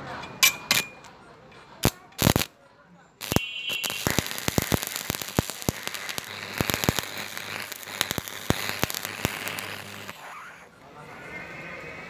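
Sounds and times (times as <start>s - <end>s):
welding arc crackling: 0.7s - 1.1s, 1.8s - 2.5s, 3.2s - 10.7s.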